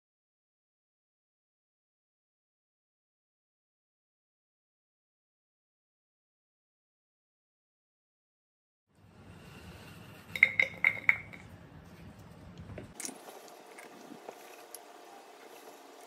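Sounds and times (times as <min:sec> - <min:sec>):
glass lid clinking on pot: 0:10.3 - 0:11.4.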